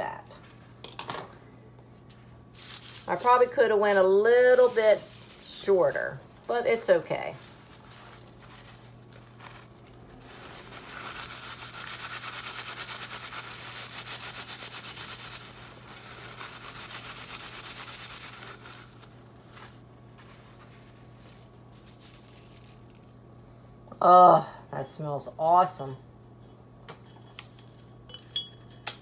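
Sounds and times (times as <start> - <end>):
paper towel rubbing scratchily: 2.6 - 23.0.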